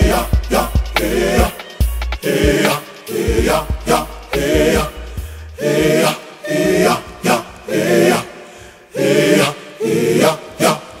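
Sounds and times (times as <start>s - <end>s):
bass beat: 0.0s - 6.0s
layered wordless sung vocals: 0.0s - 11.0s.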